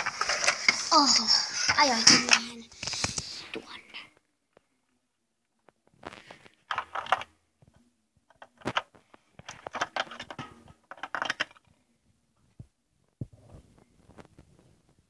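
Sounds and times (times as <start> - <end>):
small hard objects clattering: 0.0 - 3.1.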